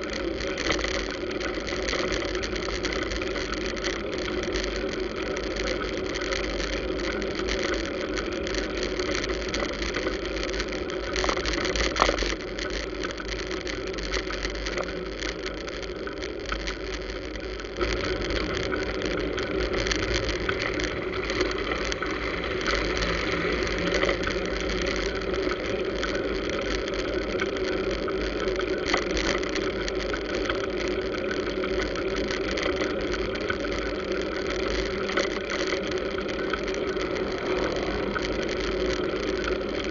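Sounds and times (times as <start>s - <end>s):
scooters and cars passing: 17.8s - 26.4s, 36.2s - 39.7s.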